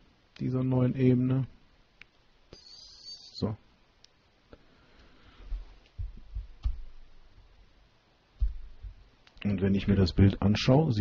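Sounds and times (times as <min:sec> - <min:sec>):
dull thumps on a desk: 0:08.4 - 0:09.0
person speaking: 0:09.3 - 0:11.0.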